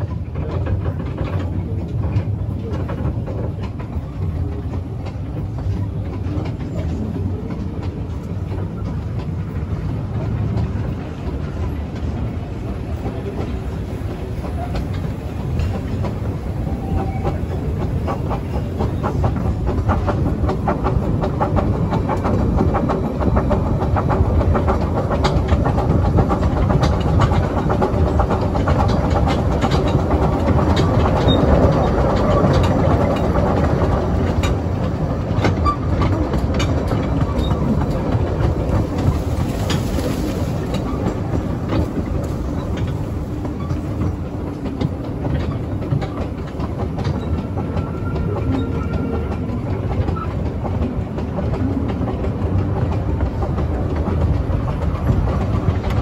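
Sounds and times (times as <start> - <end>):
steam locomotive running: 0.0 - 56.0
wheels clicking over rail joints: 0.0 - 56.0.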